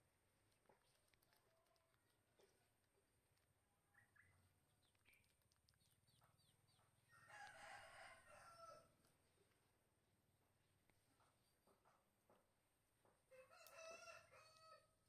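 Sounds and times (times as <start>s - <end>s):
faint rooster crowing: 7.1s - 9.0s, 13.3s - 15.0s.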